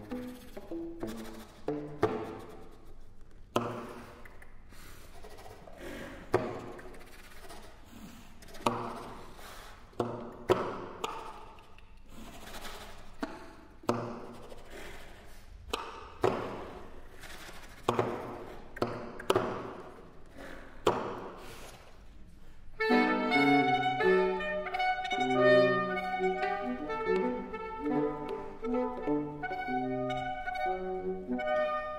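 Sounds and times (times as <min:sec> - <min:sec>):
saxophone quartet playing: 0:22.8 - 0:31.9.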